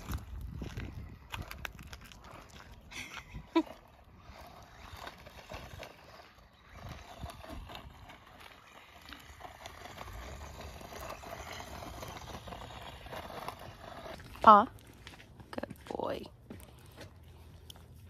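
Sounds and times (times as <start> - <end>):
wind rumble on microphone: 0.0 - 13.1.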